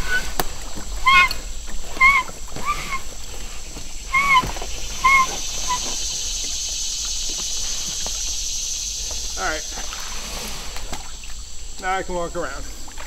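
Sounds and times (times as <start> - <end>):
animal calling: 0.0 - 8.4
steady high hiss: 0.0 - 13.0.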